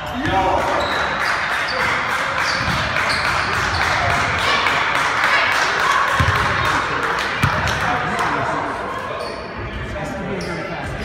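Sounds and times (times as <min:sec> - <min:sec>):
crowd hubbub in gymnasium: 0:00.0 - 0:11.0
sneakers squeaking on court: 0:02.4 - 0:04.2.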